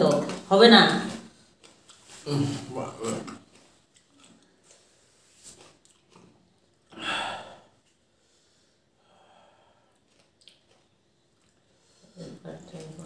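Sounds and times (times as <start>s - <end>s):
faint breathing: 6.9s - 10.0s.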